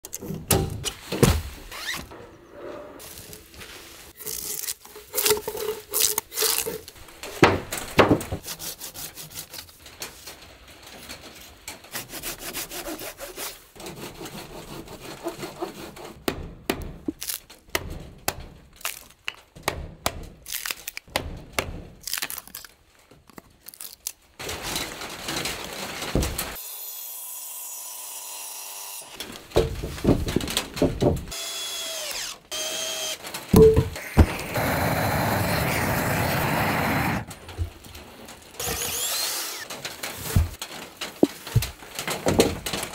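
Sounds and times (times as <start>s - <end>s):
scraping and cutting strokes on wood: 1.8s - 10.3s, 11.8s - 16.2s, 34.0s - 37.9s, 38.6s - 40.6s
cordless drill whirring: 38.6s - 39.7s.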